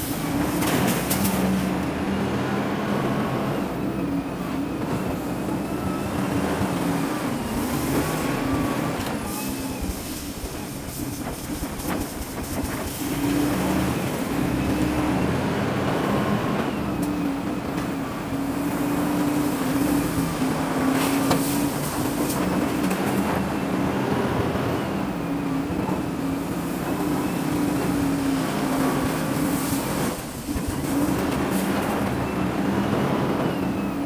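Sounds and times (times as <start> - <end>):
diesel engine running under load: 0.0 - 34.0.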